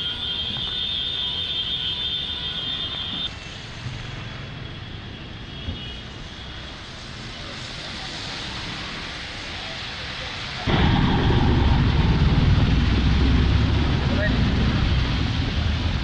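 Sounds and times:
heavy rain: 0.0 - 16.0
traffic on wet street: 0.0 - 16.0
high-pitched whine: 10.7 - 16.0.

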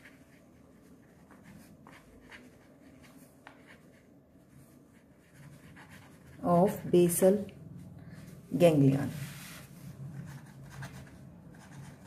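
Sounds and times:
pen scratching on paper: 0.0 - 6.9, 10.1 - 12.0.

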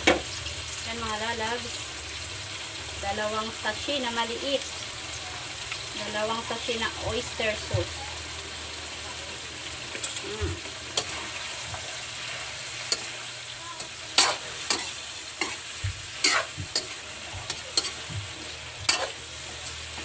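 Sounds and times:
shrimp sizzling in a wok: 0.0 - 20.0
metal spoon scraping a pan: 10.9 - 13.2, 13.8 - 20.0.

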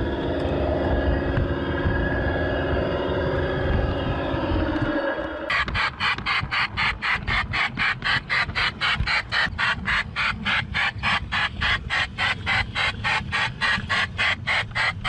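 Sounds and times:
model steam locomotive chuffing: 5.5 - 15.0.

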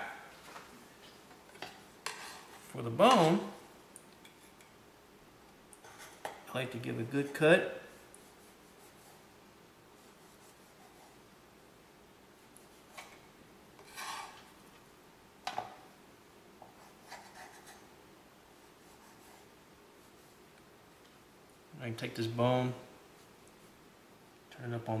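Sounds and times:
knife blade scraping: 13.8 - 14.5.

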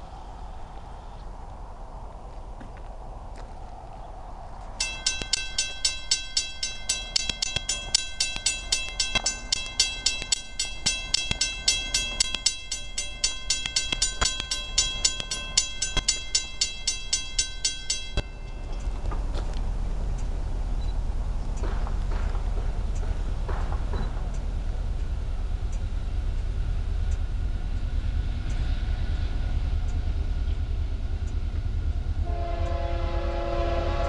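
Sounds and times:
low rumble: 0.0 - 32.3
railroad crossing bell ringing: 4.8 - 22.2.

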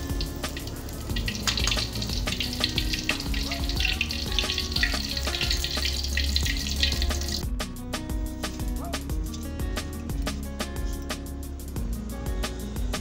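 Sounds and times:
oil sizzling and crackling in a wok: 0.0 - 7.5.

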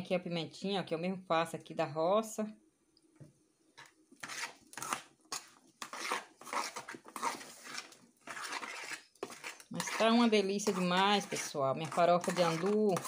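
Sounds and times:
metal spoon scraping a pan: 3.8 - 13.0.

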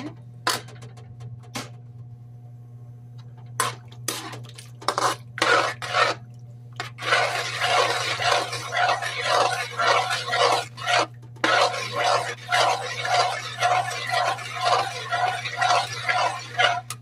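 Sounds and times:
spoon scraping a metal wok: 4.9 - 6.2, 6.8 - 17.0.

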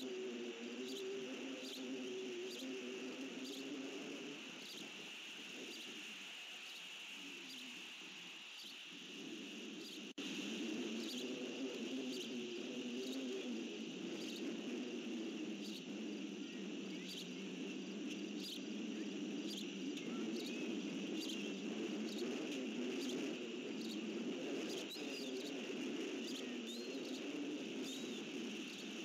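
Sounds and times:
insect drone: 0.0 - 29.0.

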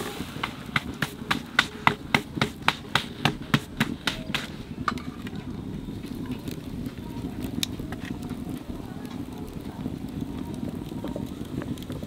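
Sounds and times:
wood fire burning: 0.0 - 12.0
sharp taps: 0.4 - 5.0.

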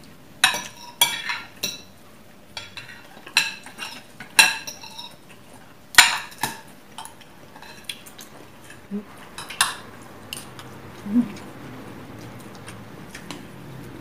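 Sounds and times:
cutlery clinking on plates: 0.4 - 1.9, 2.6 - 5.2, 6.0 - 8.8.

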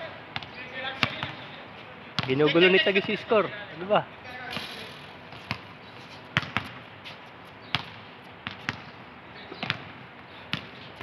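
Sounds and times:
basketball bouncing on hard court: 0.4 - 1.4, 2.2 - 2.4, 5.3 - 5.7, 6.3 - 6.8, 7.6 - 8.9, 9.5 - 10.8.

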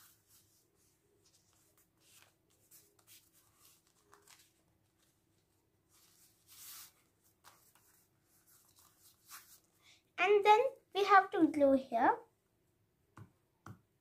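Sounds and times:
paper being folded: 0.0 - 9.7.

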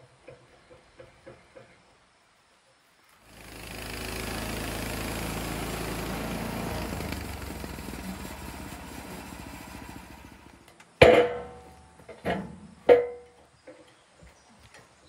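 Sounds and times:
small gasoline engine running: 3.2 - 10.8.

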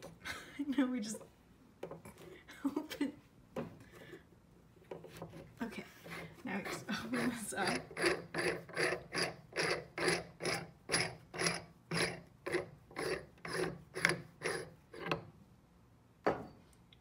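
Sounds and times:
metal threads rasping: 4.9 - 15.2.

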